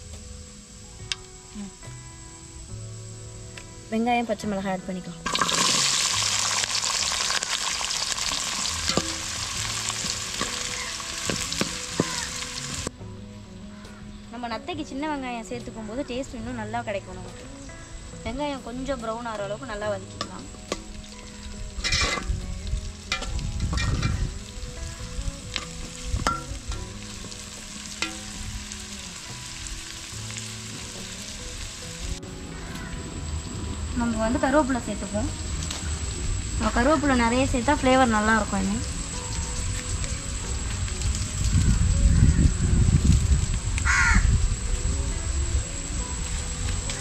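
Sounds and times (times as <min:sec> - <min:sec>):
shallots sizzling in hot oil: 0:00.0 - 0:13.0, 0:13.6 - 0:47.0
metal ladle knocking pot: 0:08.8 - 0:09.4, 0:21.8 - 0:22.3, 0:23.1 - 0:24.2, 0:26.2 - 0:26.9
metal spoon clinking against pan: 0:21.8 - 0:22.3.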